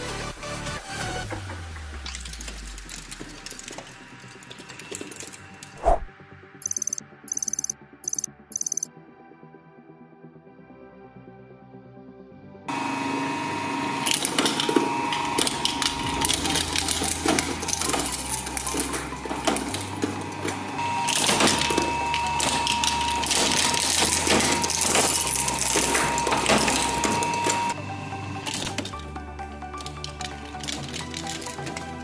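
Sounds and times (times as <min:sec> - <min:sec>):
shredder crunching metal toy car: 0:02.0 - 0:05.8, 0:13.5 - 0:27.8, 0:28.4 - 0:32.0
shredder motor whine: 0:12.7 - 0:32.0.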